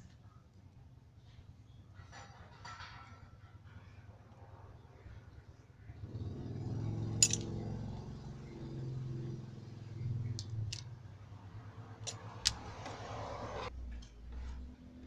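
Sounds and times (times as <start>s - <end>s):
metal tools clicking on workbench: 7.2s - 7.5s, 10.4s - 10.9s.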